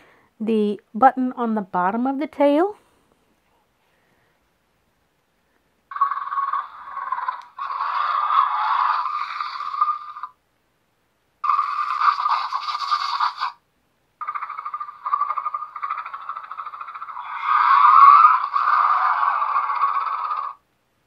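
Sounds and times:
toy dinosaur roars: 5.9 - 10.4, 11.4 - 13.6, 14.2 - 20.6.

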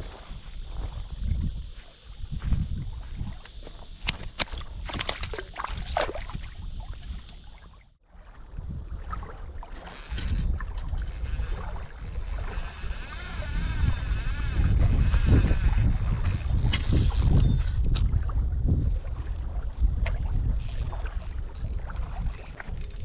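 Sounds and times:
wind on microphone: 0.0 - 23.0.

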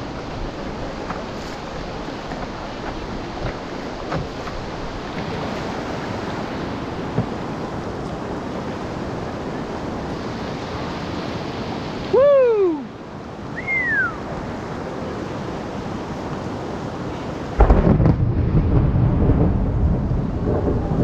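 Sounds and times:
river rapids rushing: 0.0 - 17.7
whooping call: 12.1 - 12.9, 13.5 - 14.3
higher swooping call: 13.5 - 14.3
low rumble: 17.6 - 21.0.

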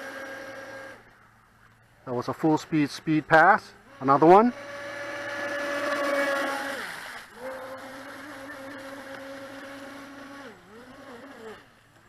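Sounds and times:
electric motor whining: 0.0 - 1.1, 3.8 - 12.0.

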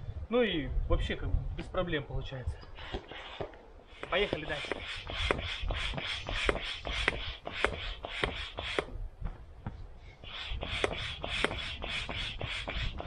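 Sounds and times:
hand pump whooshing air: 2.6 - 9.1, 10.0 - 13.0.

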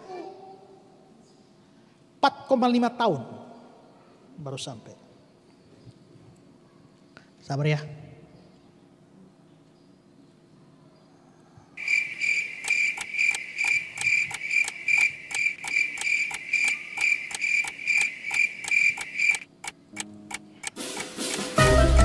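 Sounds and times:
crickets chirping: 11.8 - 20.0
sharp clicks: 11.8 - 21.5.

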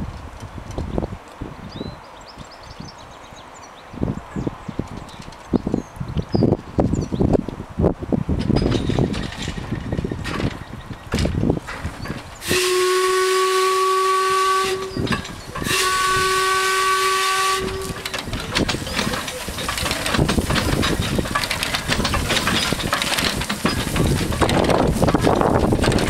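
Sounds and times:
locomotive exhaust beats: 8.3 - 26.0
steam hissing: 11.8 - 26.0
steam whistle blasts: 12.4 - 18.1.

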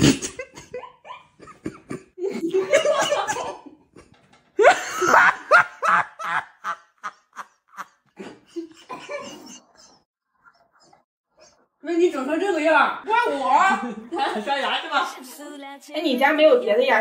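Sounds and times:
women laughing: 0.3 - 11.0.

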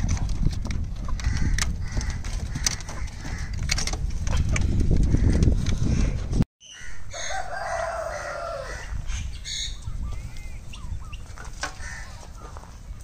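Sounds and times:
rooster crowing: 6.8 - 9.0.

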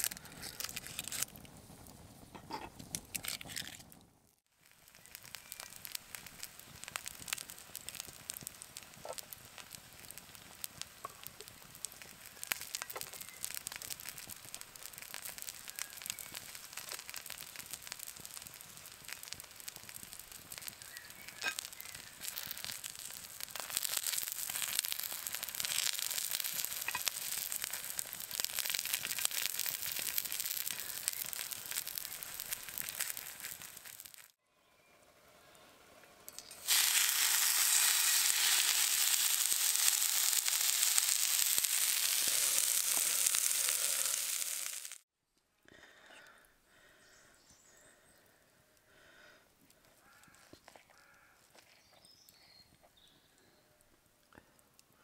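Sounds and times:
shallots sizzling in a skillet: 0.0 - 1.7, 4.5 - 34.4, 36.2 - 45.0
small pops and crackles: 0.0 - 34.4, 36.3 - 45.0, 49.6 - 54.9.

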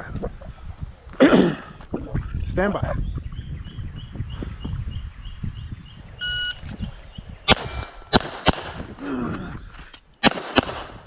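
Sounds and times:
pistol shots: 7.5 - 8.9, 10.2 - 11.0.

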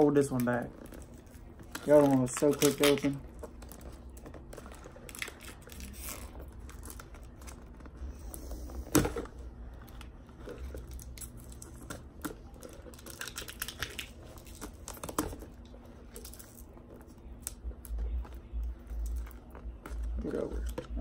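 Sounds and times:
paper and tape crinkling: 0.0 - 21.0.

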